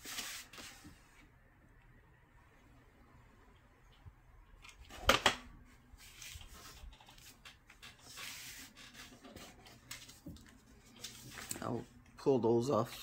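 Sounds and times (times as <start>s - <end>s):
cardstock rustling and rubbing: 0.0s - 1.2s, 6.0s - 11.9s.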